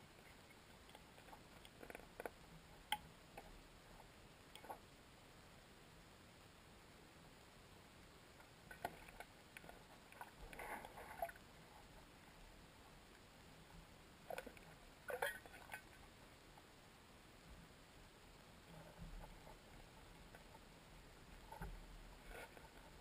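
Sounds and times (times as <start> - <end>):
faint clicks and knocks: 0.0 - 5.0, 8.3 - 12.1, 13.0 - 16.7, 18.4 - 23.0
faint steady hiss: 0.0 - 23.0.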